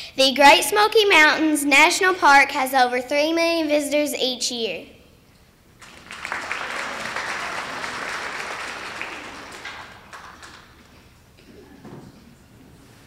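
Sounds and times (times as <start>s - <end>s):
audience applauding: 5.8s - 11.1s.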